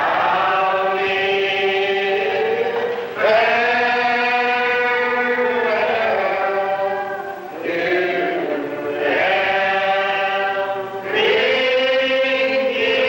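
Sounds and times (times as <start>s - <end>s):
congregation singing a hymn: 0.0s - 13.0s.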